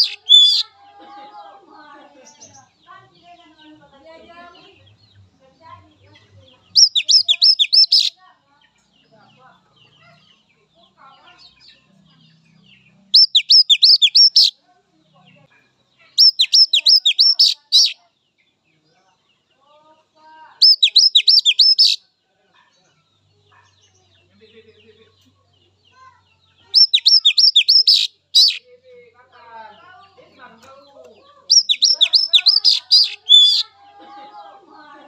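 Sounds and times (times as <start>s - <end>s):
bird whistling calls: 0.0s - 0.6s, 6.8s - 8.1s, 13.2s - 14.5s, 16.2s - 18.0s, 20.6s - 22.0s, 26.8s - 28.6s, 31.5s - 33.6s.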